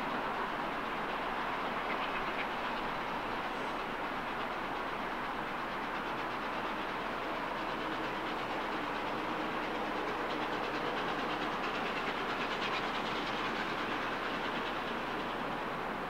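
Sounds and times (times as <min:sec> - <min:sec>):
train rail noise: 0:00.0 - 0:16.0.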